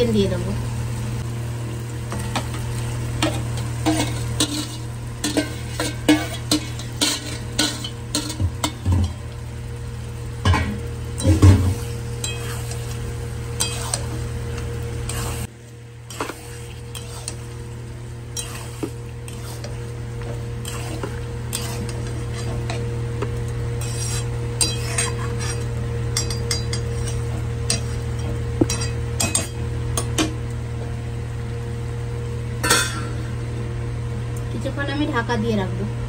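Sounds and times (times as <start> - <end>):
food frying: 0.0 - 35.6
steady hum: 0.0 - 36.0
metal spatula scraping pan: 3.2 - 9.0, 13.6 - 14.2, 16.1 - 17.5, 18.3 - 22.8, 23.8 - 28.1
clinks against pan: 26.1 - 30.3.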